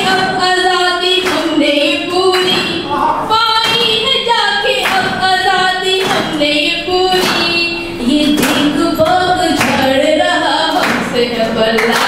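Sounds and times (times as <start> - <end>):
woman singing: 0.0 - 12.0
sharp knocks: 2.3 - 2.9, 3.6 - 4.0, 4.8 - 6.4, 7.1 - 7.6, 8.2 - 10.0.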